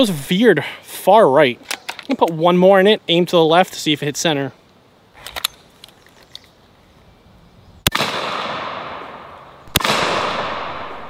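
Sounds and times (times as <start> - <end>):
air rifle sharp reports: 0.0 - 1.6, 7.9 - 11.0.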